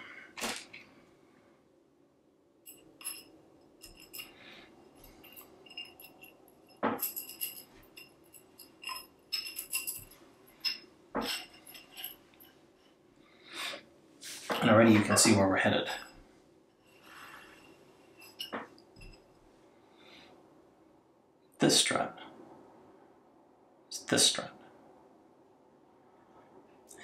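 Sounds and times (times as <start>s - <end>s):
metal struts clicking and ringing: 2.7s - 12.4s.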